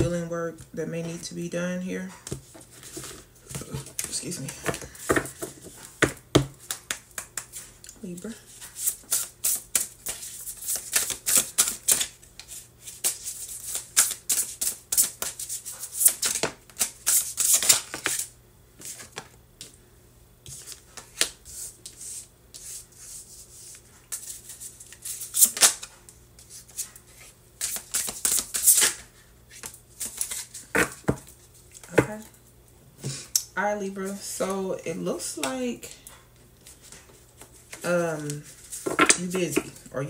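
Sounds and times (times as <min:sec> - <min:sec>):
cards being shuffled: 0:08.6 - 0:19.3, 0:23.7 - 0:32.1.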